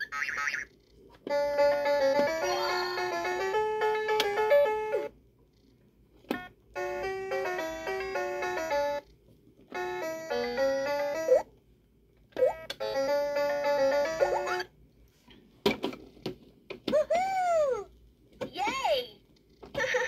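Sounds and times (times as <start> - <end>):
toy keyboard electronic melodies: 0.0 - 5.1, 6.3 - 9.1, 9.7 - 11.5, 12.4 - 14.7.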